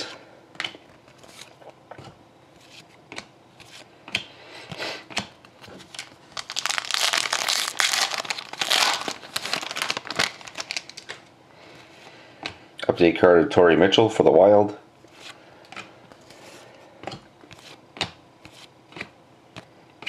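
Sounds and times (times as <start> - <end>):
foil wrapper crinkling: 5.6 - 11.3.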